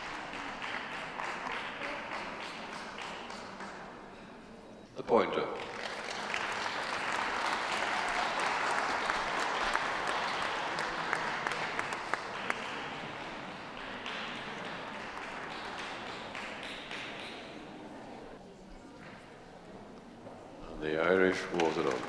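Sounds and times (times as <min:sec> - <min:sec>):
audience applauding: 0:00.0 - 0:03.8, 0:05.6 - 0:17.7, 0:21.5 - 0:22.0.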